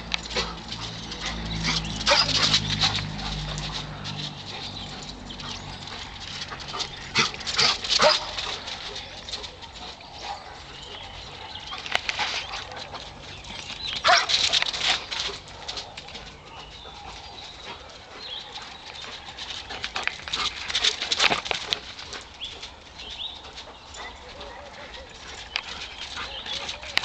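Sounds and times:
dog paws scuffing on dirt: 0.0s - 27.0s.

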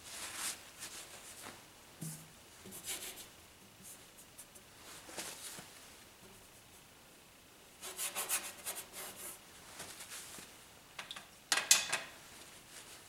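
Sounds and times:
bristle brush scrubbing paint: 2.0s - 4.6s, 7.8s - 9.4s.

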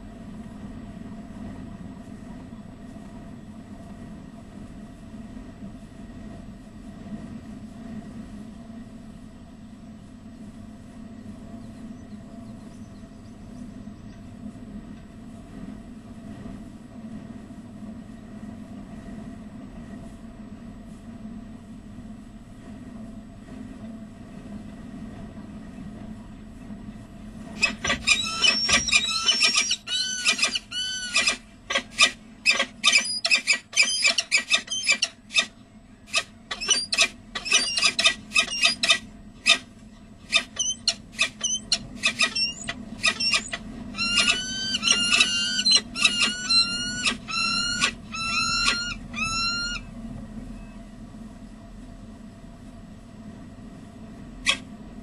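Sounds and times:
low electrical hum: 0.0s - 55.0s
falcons calling: 27.6s - 35.5s, 36.1s - 49.9s.

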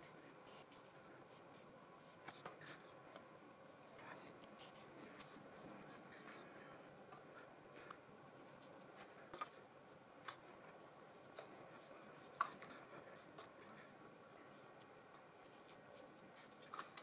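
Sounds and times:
paintbrush scratching on paper: 0.2s - 2.9s, 4.1s - 6.4s, 14.5s - 17.0s.

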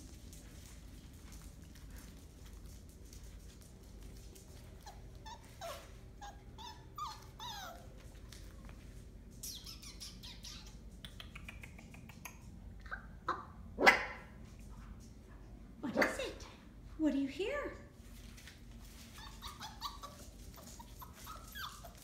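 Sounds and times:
puppies whimpering and yipping: 4.8s - 8.0s, 9.4s - 10.9s, 19.0s - 22.0s
puppy bark: 13.3s - 14.4s.

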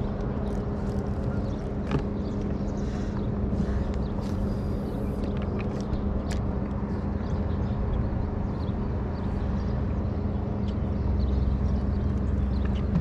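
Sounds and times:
electric trolling motor humming: 0.0s - 9.0s
wind rumbling on microphone: 0.0s - 13.0s.

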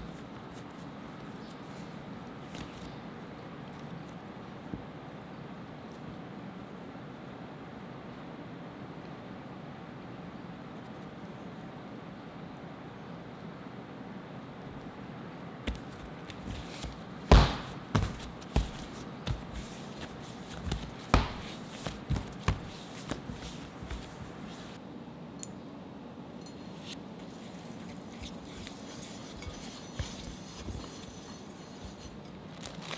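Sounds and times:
low room noise rumble: 0.0s - 32.9s
dough thumping and slapping: 15.7s - 24.8s.

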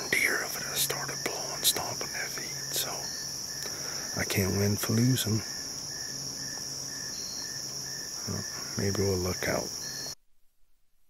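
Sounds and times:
man speaking: 0.0s - 3.1s, 4.1s - 5.4s, 8.2s - 9.7s
high-pitched insect drone: 0.0s - 10.2s
lower pulsing insect call: 0.0s - 10.2s.

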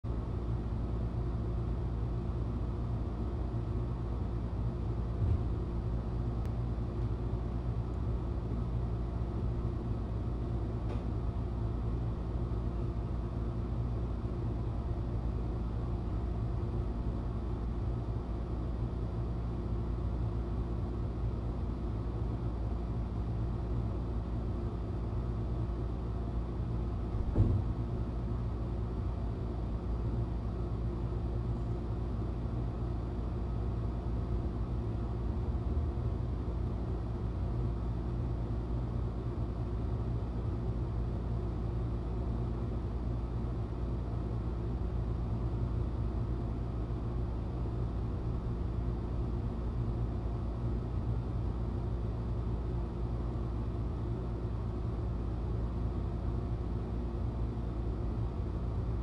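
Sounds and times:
soft knock: 27.2s - 27.7s.

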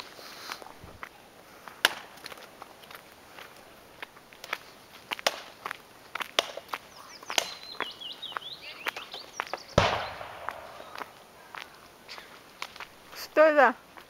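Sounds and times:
footsteps crunching on dirt: 0.0s - 14.0s
small bird chirping: 6.8s - 12.3s.

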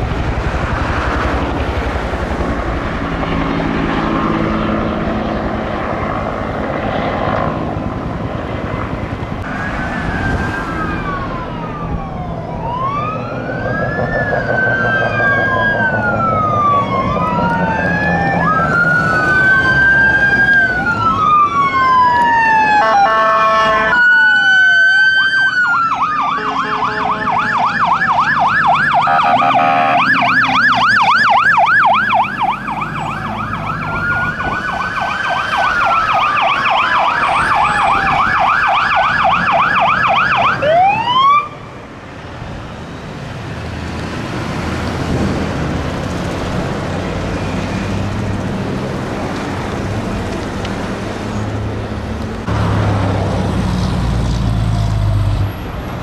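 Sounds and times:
fire engine sirens wailing: 0.0s - 56.0s
siren fast yelp: 9.5s - 41.7s
horn blast: 22.8s - 24.0s, 26.3s - 27.4s, 29.0s - 30.4s.

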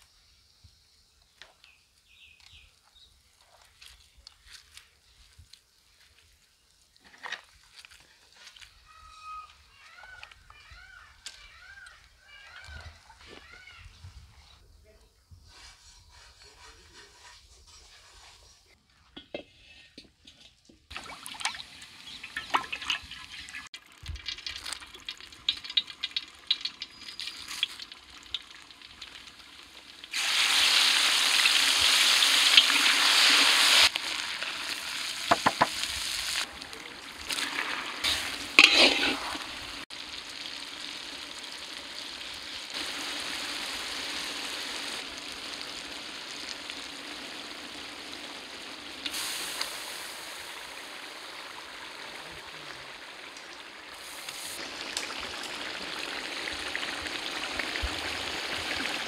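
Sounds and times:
spices sizzling in hot oil: 20.9s - 59.0s.

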